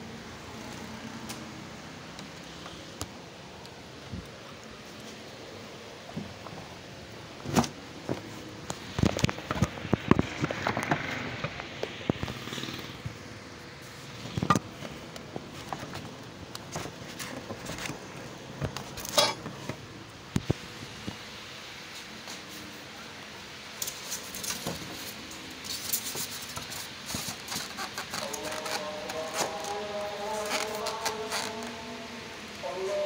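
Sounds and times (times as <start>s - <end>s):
cardboard and paper rustling: 4.1s - 12.4s, 13.8s - 19.8s, 23.9s - 32.0s.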